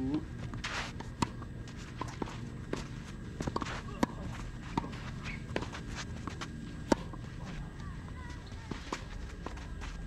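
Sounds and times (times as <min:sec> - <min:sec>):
footsteps scuffing on clay: 0:00.4 - 0:10.0
tennis ball knocks: 0:03.4 - 0:05.7.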